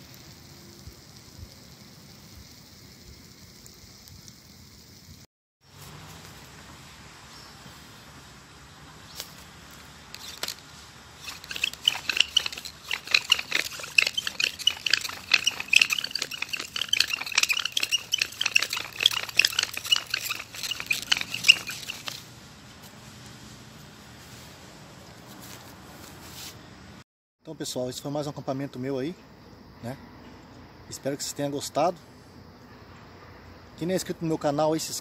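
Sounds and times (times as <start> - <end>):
faint steady hiss: 0.0 - 20.6
high-pitched animal calls: 11.3 - 22.2.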